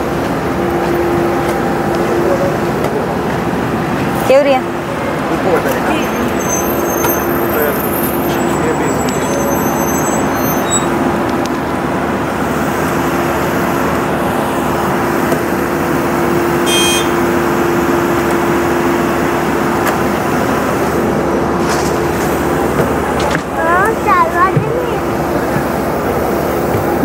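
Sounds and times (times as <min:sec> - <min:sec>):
aircraft noise roaring: 0:00.0 - 0:27.0
short high-pitched beep: 0:16.7 - 0:17.1.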